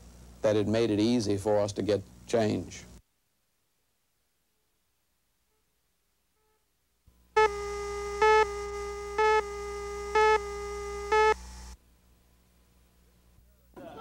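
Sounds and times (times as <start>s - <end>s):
low hum: 7.1s - 13.3s
beeps: 7.4s - 11.4s
steady tone: 7.4s - 11.8s.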